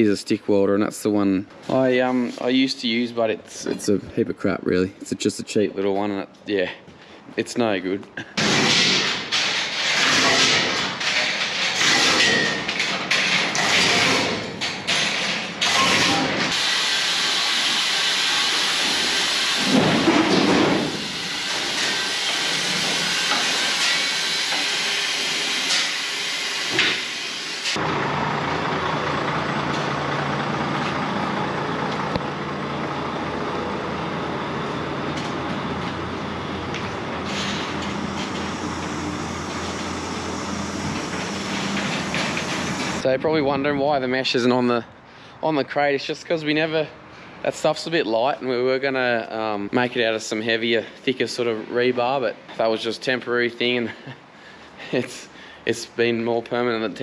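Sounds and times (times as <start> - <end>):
high-pressure spray hissing: 16.5 - 19.8, 20.9 - 27.8
truck engine idling: 27.8 - 43.0.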